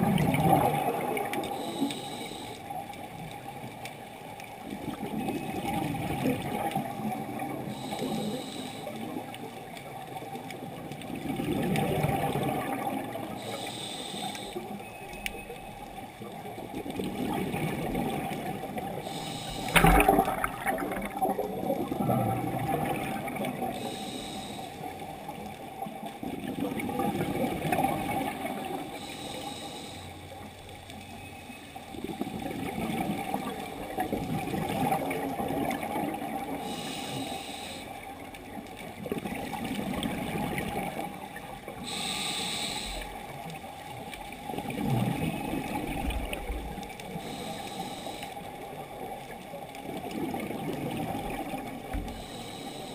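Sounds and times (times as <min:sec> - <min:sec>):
exhaled air bubbling: 0:00.0 - 0:02.2, 0:04.7 - 0:09.4, 0:10.5 - 0:13.5, 0:16.6 - 0:29.3, 0:32.0 - 0:37.1, 0:38.4 - 0:52.9
regulator inhale hiss: 0:01.5 - 0:02.8, 0:07.7 - 0:09.2, 0:13.3 - 0:14.8, 0:19.0 - 0:20.1, 0:23.8 - 0:25.0, 0:28.9 - 0:30.4, 0:36.6 - 0:38.0, 0:41.8 - 0:43.3, 0:47.0 - 0:48.6, 0:51.9 - 0:52.9.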